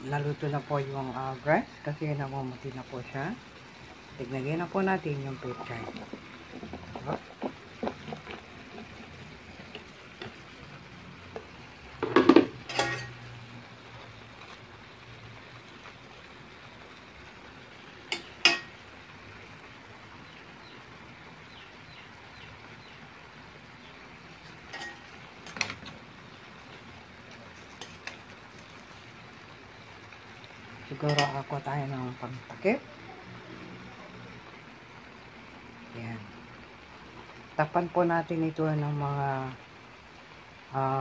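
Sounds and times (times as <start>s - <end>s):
metal spatula scraping metal pan: 12.6s - 13.2s.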